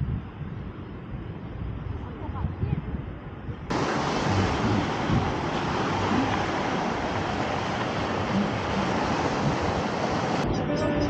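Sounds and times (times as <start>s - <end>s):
wind: 0.0s - 11.0s
sea surf washing onto beach: 3.7s - 10.5s.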